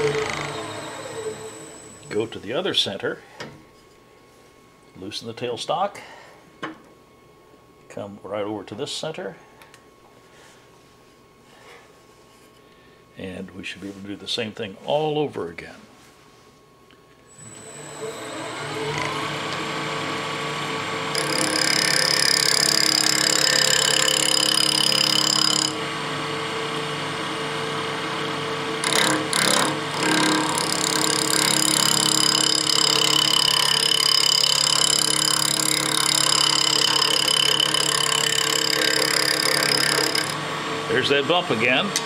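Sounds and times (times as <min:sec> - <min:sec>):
lathe motor hum: 0:00.0 - 0:02.3, 0:17.4 - 0:42.0
turning tool cutting wood: 0:00.0 - 0:02.3, 0:17.4 - 0:42.0.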